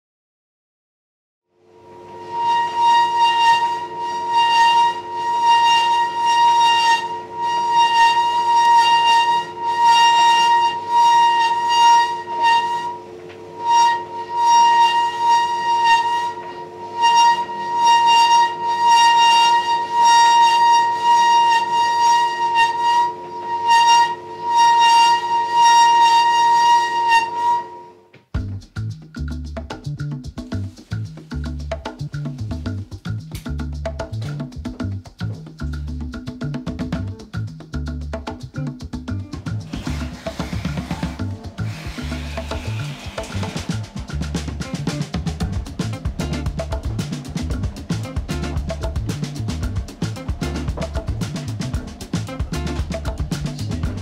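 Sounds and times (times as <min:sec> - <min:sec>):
tumble dryer screeching: 0:01.9 - 0:27.9, 0:39.7 - 0:44.0
tumble dryer hum: 0:39.2 - 0:54.0.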